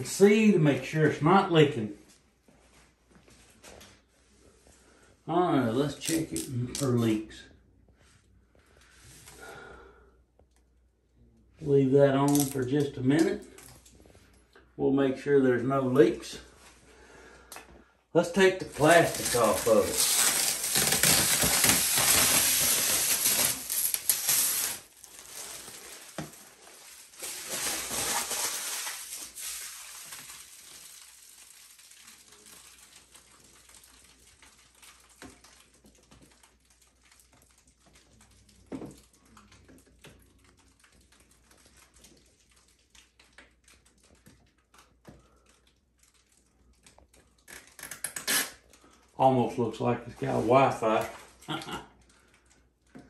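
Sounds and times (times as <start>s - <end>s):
plastic film crinkling: 18.2s - 53.0s
faint clicks and rustles: 18.7s - 49.2s.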